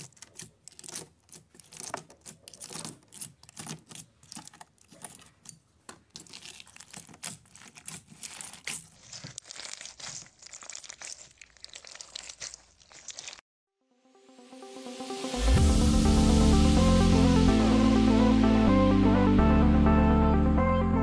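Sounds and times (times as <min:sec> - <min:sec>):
slime crackling when squeezed: 0:06.1 - 0:13.4.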